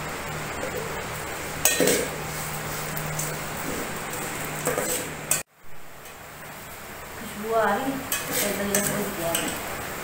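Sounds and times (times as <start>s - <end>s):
metal spoon scraping a pot: 4.6s - 5.4s, 8.1s - 9.5s.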